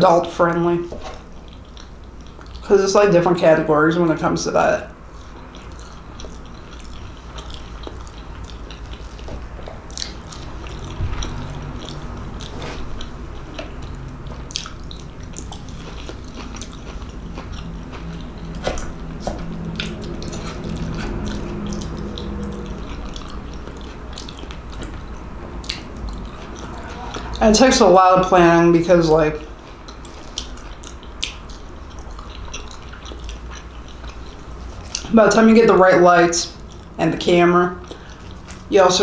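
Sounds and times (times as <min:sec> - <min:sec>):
low steady hum: 0:00.0 - 0:39.0
person chewing soft food: 0:00.9 - 0:02.7, 0:04.8 - 0:28.0, 0:29.4 - 0:35.2, 0:35.9 - 0:37.0, 0:37.8 - 0:38.7
sharp mouth clicks: 0:04.9 - 0:27.4, 0:29.7 - 0:35.1.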